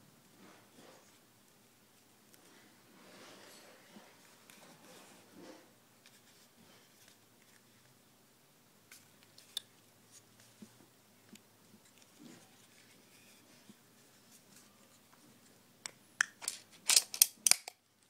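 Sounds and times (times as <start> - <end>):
plastic clicks of handling: 15.8 - 17.8.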